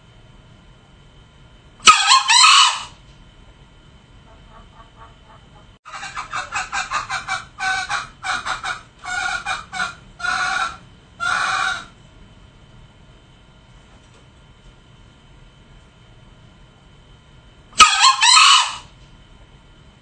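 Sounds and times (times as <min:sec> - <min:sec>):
junglefowl clucking and calling: 0:01.8 - 0:03.0, 0:04.2 - 0:12.0, 0:17.8 - 0:18.9.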